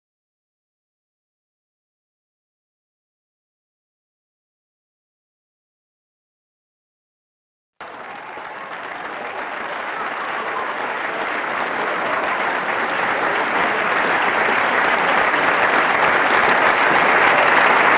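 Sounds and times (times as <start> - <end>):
applause: 7.8 - 17.9.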